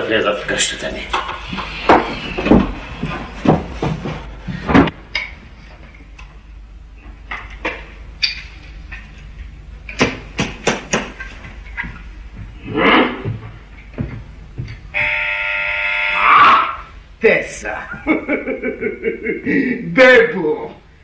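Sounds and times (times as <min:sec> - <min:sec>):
sharp knocks: 0:09.9 - 0:11.9.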